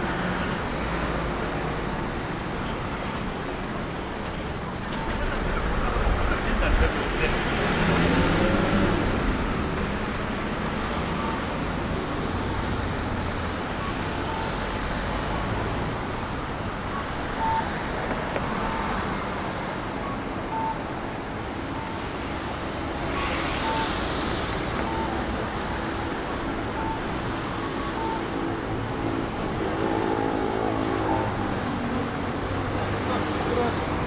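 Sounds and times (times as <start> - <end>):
city road traffic: 0.0 - 34.0
pedestrian crossing signal pips: 13.7 - 15.9, 16.9 - 19.1, 20.0 - 20.9, 23.0 - 32.2.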